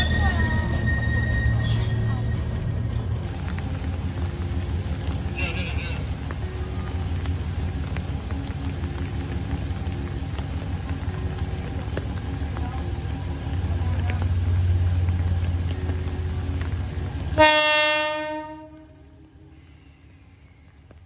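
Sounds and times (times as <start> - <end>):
diesel locomotive engine rumble: 0.0 - 21.0
rain hiss: 1.2 - 21.0
train horn blast: 17.3 - 19.2.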